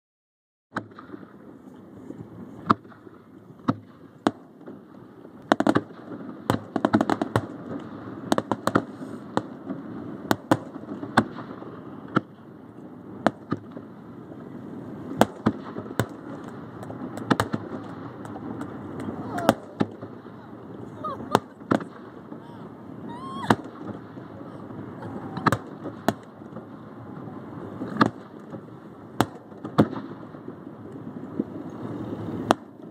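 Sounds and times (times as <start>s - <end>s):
firework shells bursting: 15.2s - 26.9s.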